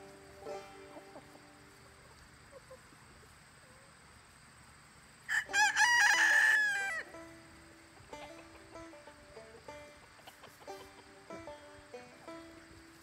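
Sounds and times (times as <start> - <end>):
rooster crowing: 5.3 - 7.1.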